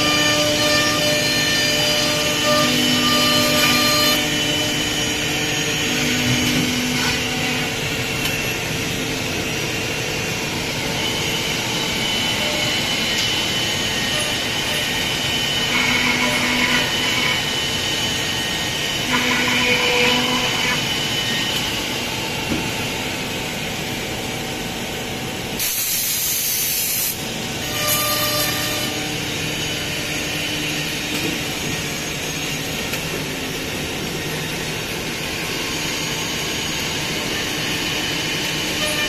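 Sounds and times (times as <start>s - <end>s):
machine drone: 0.0s - 39.0s
loud air hisses: 25.6s - 27.2s.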